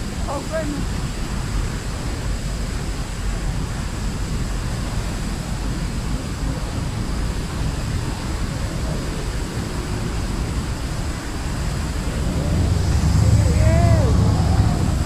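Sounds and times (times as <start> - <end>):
waterfall rushing: 0.0 - 15.0.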